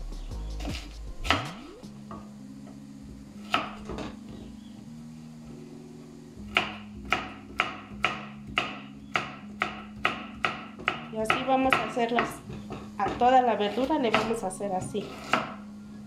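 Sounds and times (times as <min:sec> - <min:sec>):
knife chopping on wooden board: 0:03.5 - 0:04.1, 0:06.5 - 0:15.6.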